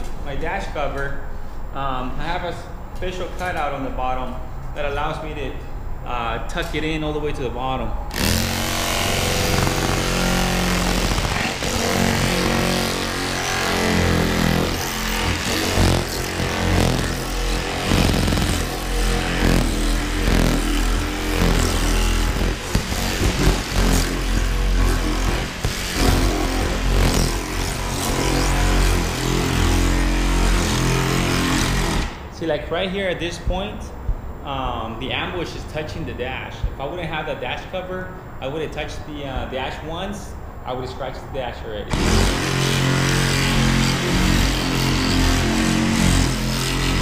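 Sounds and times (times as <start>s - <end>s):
power cutting tool sawing: 8.1s - 32.3s, 41.9s - 47.0s.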